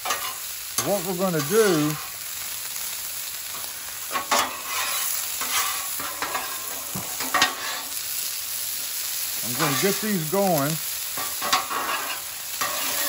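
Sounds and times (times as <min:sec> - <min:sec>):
spatula scraping griddle: 0:00.0 - 0:02.1, 0:03.5 - 0:08.0, 0:09.4 - 0:10.5, 0:11.2 - 0:13.0
vegetables sizzling in oil: 0:00.0 - 0:13.0.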